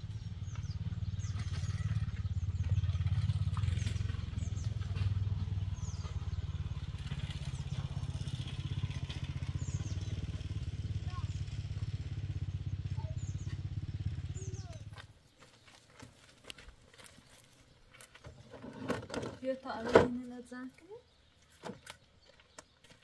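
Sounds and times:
small engine running: 0:00.0 - 0:15.8.

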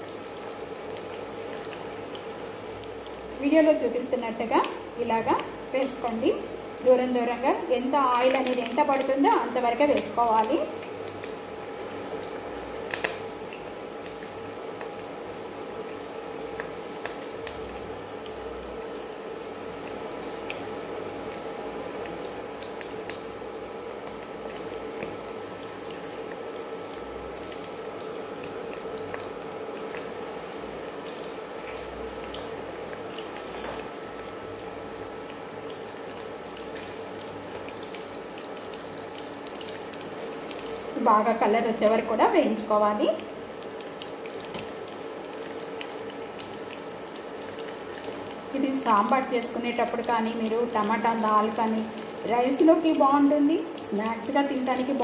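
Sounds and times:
faint steady hum: 0:00.0 - 0:55.0
food deep-frying in oil: 0:00.0 - 0:55.0
small oil pops: 0:12.9 - 0:13.2.

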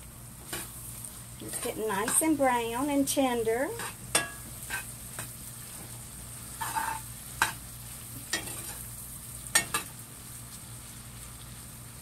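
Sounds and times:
food sizzling in a pot: 0:00.0 - 0:12.0
metal spoon scraping a pot: 0:03.7 - 0:04.9, 0:06.6 - 0:07.6.

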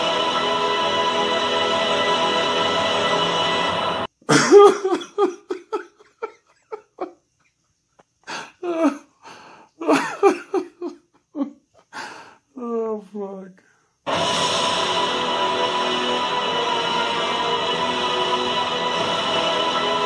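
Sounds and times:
music: 0:00.0 - 0:04.1, 0:14.1 - 0:20.0.

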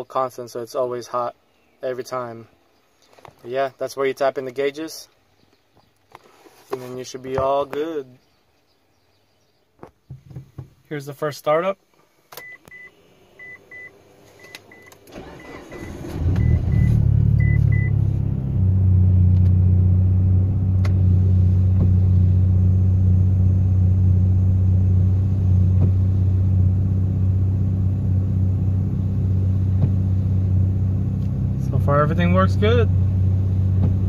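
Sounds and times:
car engine starting and idling: 0:12.3 - 0:34.0.

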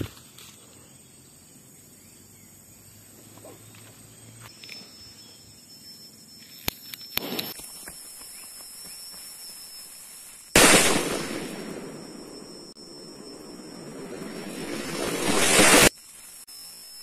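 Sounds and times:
firecracker bang: 0:10.6 - 0:12.5, 0:13.9 - 0:15.9.

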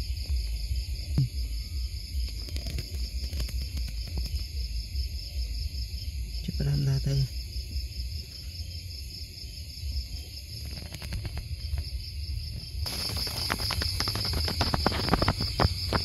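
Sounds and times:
night insects trilling: 0:00.0 - 0:16.0
rustling crackle of clicks: 0:02.2 - 0:04.4, 0:10.6 - 0:11.9, 0:12.8 - 0:16.0.

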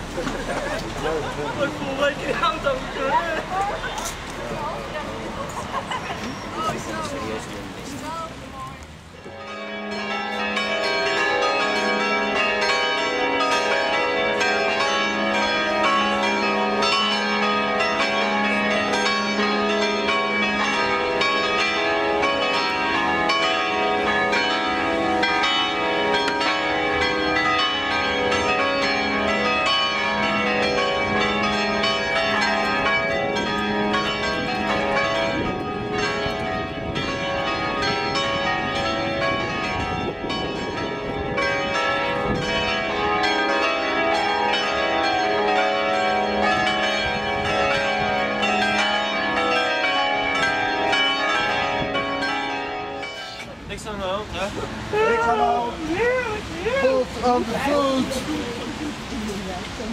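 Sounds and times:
bells ringing: 0:00.0 - 0:59.9.

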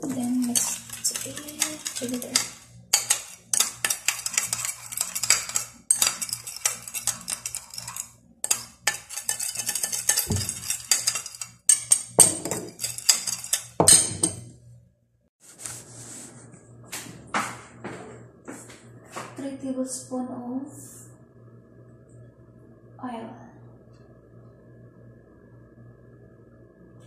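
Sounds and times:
metal spoon stirring in glass bowl: 0:00.0 - 0:14.5.

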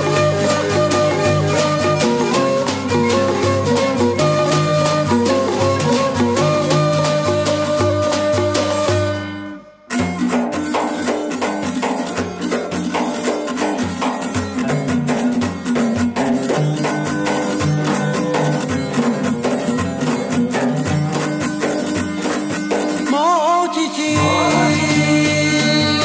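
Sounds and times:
fast steady percussion beat: 0:00.0 - 0:09.2, 0:09.9 - 0:23.2, 0:24.1 - 0:26.0
folk instrumental music: 0:00.0 - 0:26.0.

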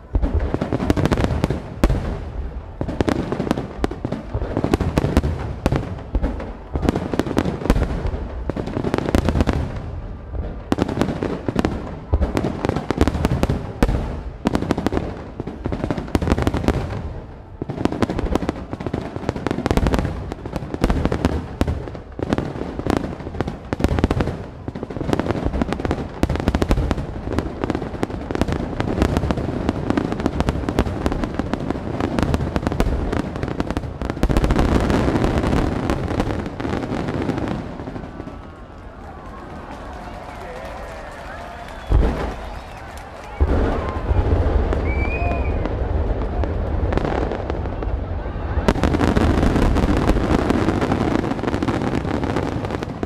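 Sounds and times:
fireworks bangs and crackles: 0:00.0 - 0:53.0.

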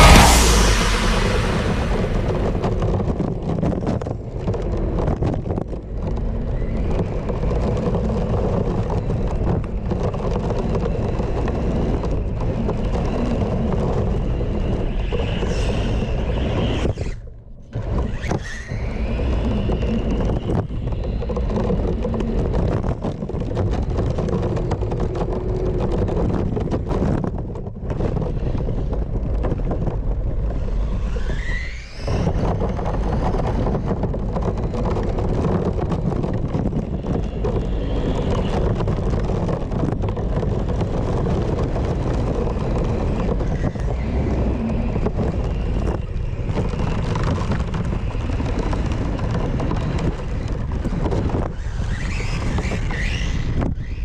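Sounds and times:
short rising whine: 0:00.0 - 0:03.2
rc car driving over dirt: 0:00.0 - 0:54.0
wind on microphone: 0:00.0 - 0:54.0.

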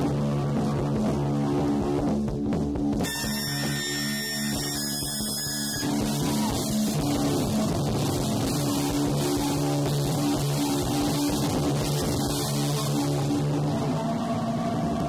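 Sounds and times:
distorted guitars droning: 0:00.0 - 0:15.0
dense wash of noise: 0:06.0 - 0:15.0.

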